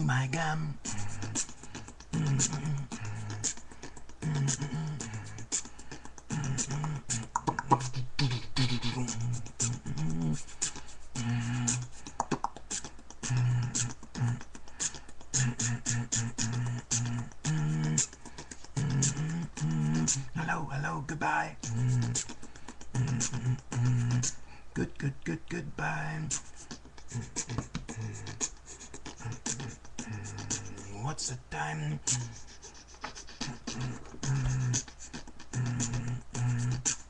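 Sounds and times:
hissed hi-hat sounds: 0.0s - 24.4s, 25.8s - 37.0s
beatboxing mouth clicks: 0.0s - 37.0s
hummed bass line: 2.1s - 3.5s, 15.4s - 18.0s, 22.9s - 26.4s, 33.4s - 34.8s, 35.5s - 36.9s.

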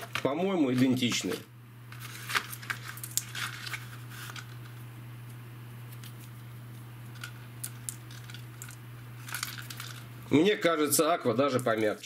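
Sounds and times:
cardboard packet rustling and clicking: 0.0s - 4.8s, 7.1s - 10.1s
steady low hum: 0.0s - 12.0s.

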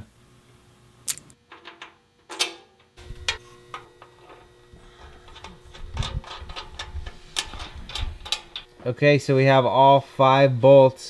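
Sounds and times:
metal hardware clinking: 1.1s - 8.7s.

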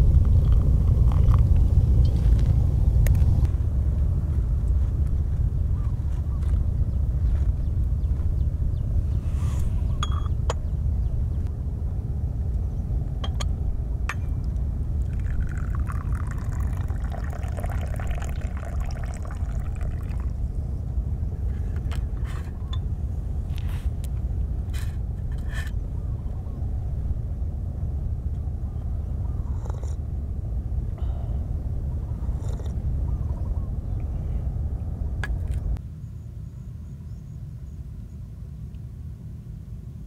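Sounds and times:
steady low rumble: 0.0s - 40.0s
tea pouring into a cup: 15.0s - 20.5s.

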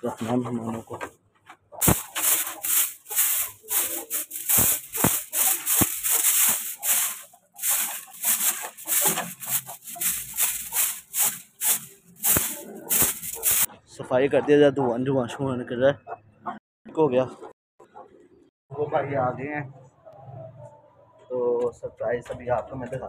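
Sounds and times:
broom knocking against wood: 1.8s - 13.7s
broom sweeping dirt floor: 1.8s - 13.7s.

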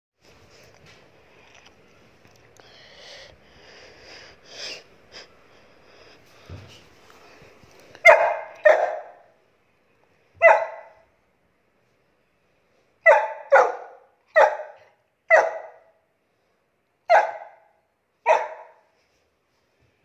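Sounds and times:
puppy barking: 8.0s - 9.4s, 10.4s - 11.1s, 13.0s - 16.0s, 17.1s - 18.9s.

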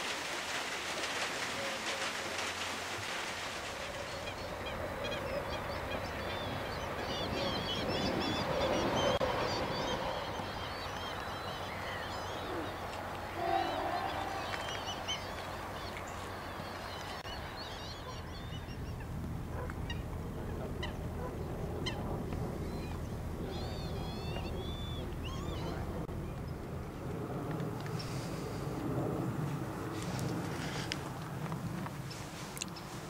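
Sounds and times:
lapwings calling: 10.2s - 19.0s
steady low rumble: 12.6s - 32.5s.

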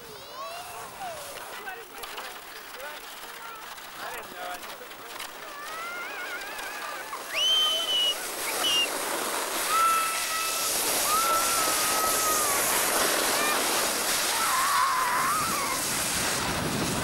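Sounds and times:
children squealing and yelling: 0.0s - 1.1s, 5.5s - 8.9s, 9.6s - 15.9s
sled rushing over snow: 0.0s - 17.0s.

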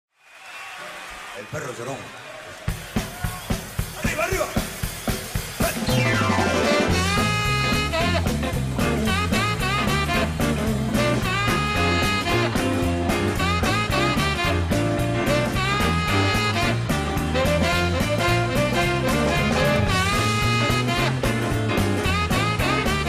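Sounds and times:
steady drums: 2.5s - 23.0s
stepping bass line: 5.6s - 23.0s
lead instrument bending melody: 5.8s - 23.0s.

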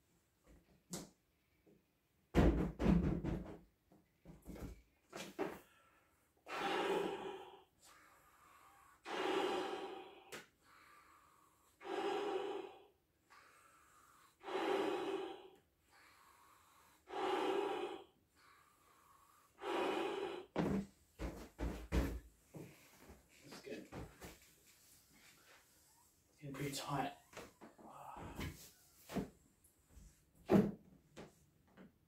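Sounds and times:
breaths blown into balloon: 5.4s - 21.3s
quiet in-breaths: 5.4s - 21.3s, 22.5s - 29.2s.

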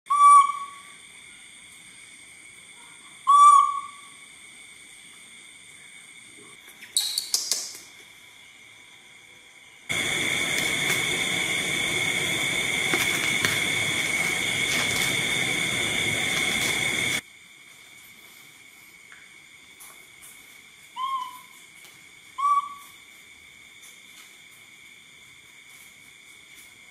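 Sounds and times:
electric fan running: 9.9s - 17.2s.

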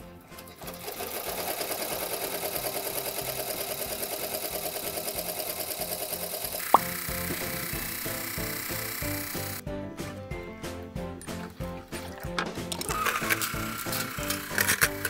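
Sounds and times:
embroidery machine stitching: 0.4s - 9.6s, 12.8s - 15.0s.

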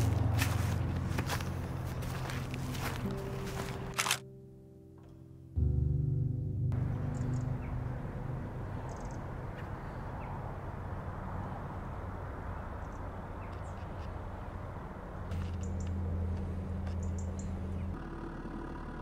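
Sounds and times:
low engine hum: 0.0s - 4.2s, 5.5s - 19.0s
high bird chirps: 6.8s - 7.9s, 8.6s - 10.4s.

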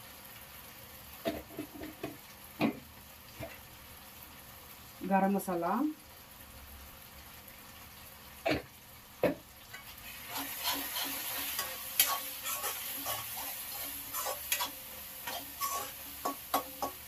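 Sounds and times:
masala sizzling: 0.0s - 17.0s
metal spatula scraping a pan: 9.7s - 17.0s.

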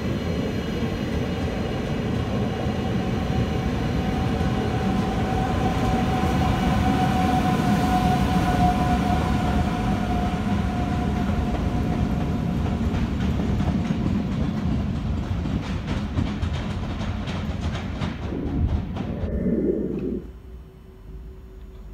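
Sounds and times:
train wheels rumbling: 8.6s - 20.3s
wheels clicking over rail joints: 12.7s - 18.3s.

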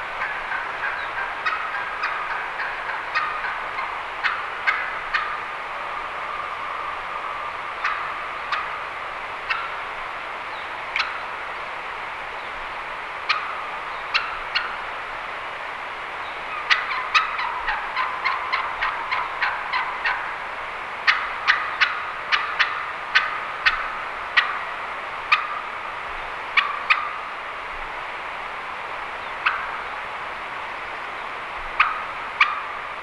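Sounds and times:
turkey call yelps: 0.2s - 8.8s, 9.5s - 9.7s, 13.3s - 14.8s, 16.5s - 20.4s, 21.1s - 24.7s, 25.3s - 25.6s, 26.6s - 27.2s, 29.4s - 29.8s, 31.8s - 32.8s.

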